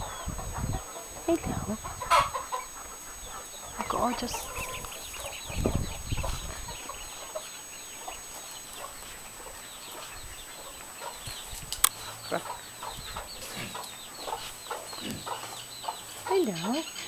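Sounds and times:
chicks and ducklings peeping: 0.0 - 17.0
sharp click: 11.7 - 12.0.

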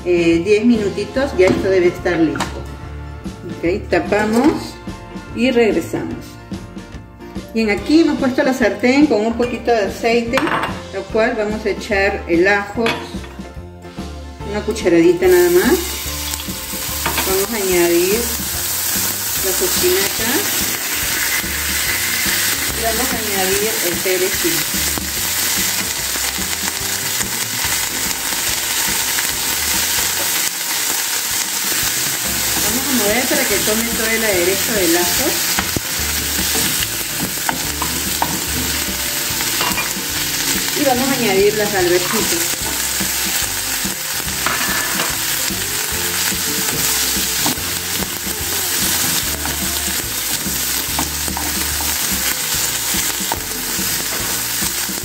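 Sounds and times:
leaves sizzling in hot oil: 15.1 - 55.0.

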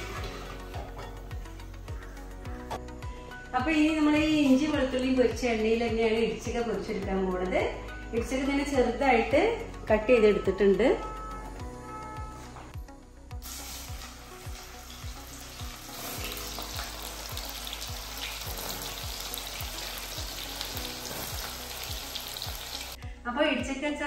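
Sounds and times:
food sizzling in hot oil: 13.4 - 23.0.

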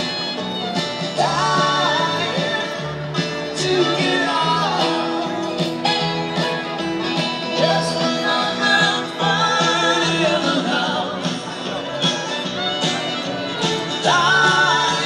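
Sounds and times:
string band playing: 0.0 - 15.0
person singing: 1.0 - 11.8, 13.8 - 15.0.

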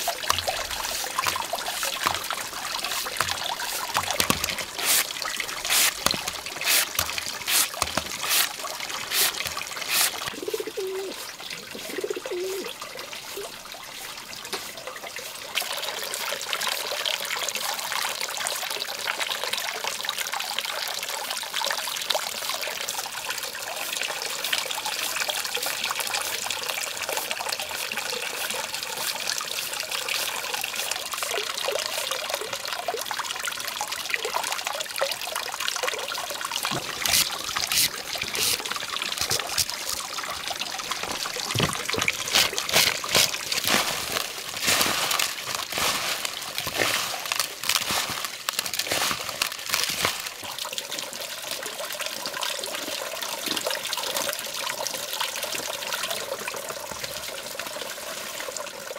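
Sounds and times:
sharp clatters or splashes: 0.0 - 10.5, 36.6 - 50.6
water trickling: 0.0 - 58.9.

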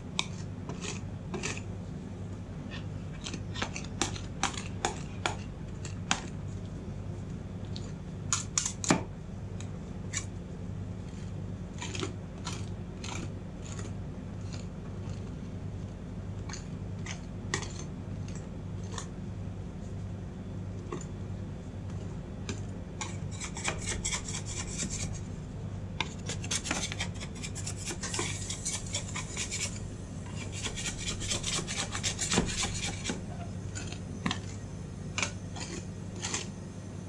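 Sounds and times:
steady low hum: 0.0 - 37.0
metal spatulas tapping and scraping: 0.2 - 1.6, 2.7 - 6.3, 23.0 - 25.2, 26.0 - 34.6.

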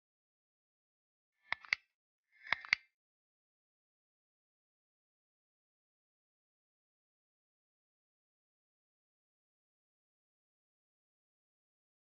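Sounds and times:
mouse clicks: 1.5 - 1.8, 2.4 - 2.8.

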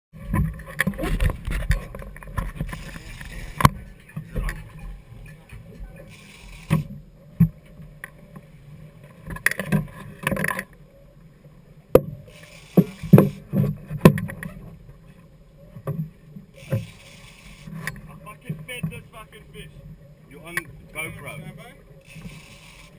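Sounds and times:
outboard engines running: 0.2 - 10.7, 12.1 - 22.9
hiss: 6.1 - 6.9, 12.3 - 13.4.

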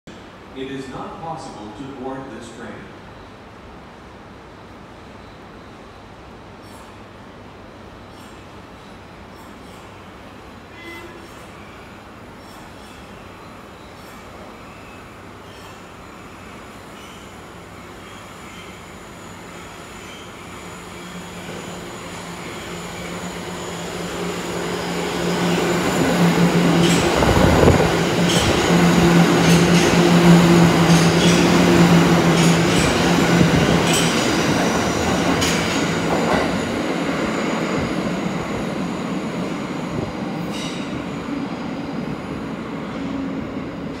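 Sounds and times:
subway train passing: 0.1 - 44.0.

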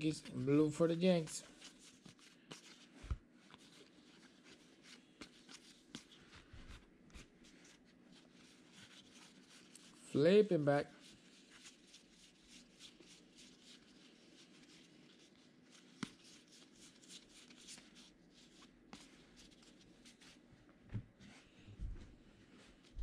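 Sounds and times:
cards rustling and flicking: 1.1 - 10.0, 11.4 - 20.2.

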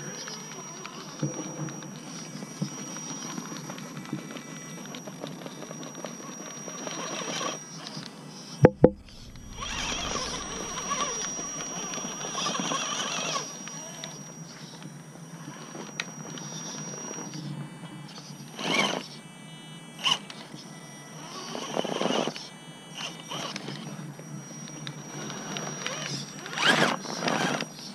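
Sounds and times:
toy car motor whirring: 0.0 - 8.6, 9.3 - 17.5, 18.1 - 19.2, 20.0 - 27.9
high whine: 0.0 - 18.3
sharp knocks: 8.7 - 11.2.

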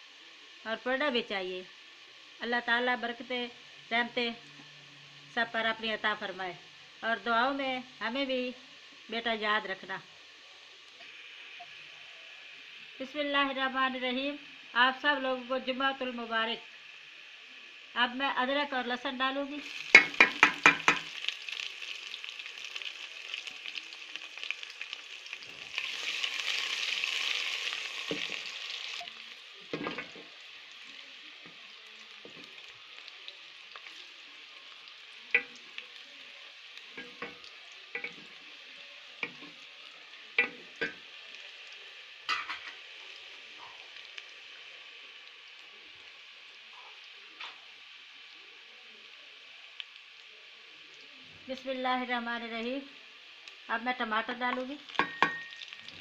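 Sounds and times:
food sizzling in hot oil: 0.0 - 56.0
wooden spoon knocking on pot: 19.9 - 21.1.

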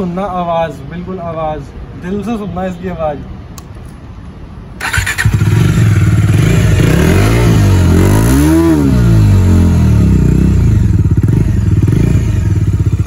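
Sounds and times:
engine revving: 4.8 - 13.0
motorcycle engine starting and idling: 4.8 - 13.0.

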